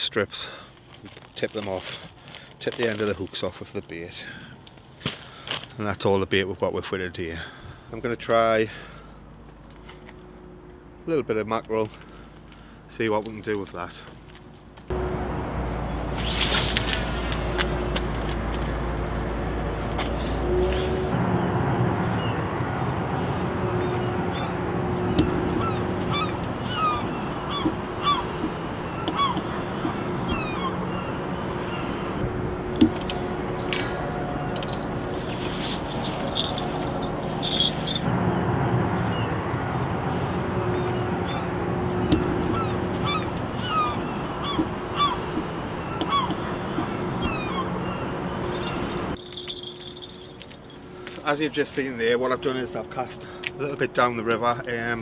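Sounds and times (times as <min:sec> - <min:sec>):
outdoor background hum: 0:00.0 - 0:55.0
short bird calls: 0:23.8 - 0:32.2, 0:40.8 - 0:49.0.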